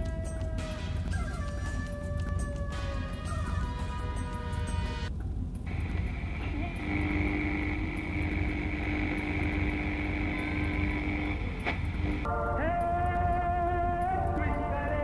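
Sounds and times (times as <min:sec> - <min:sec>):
music: 0:00.0 - 0:15.0
steady held tone: 0:05.7 - 0:14.6.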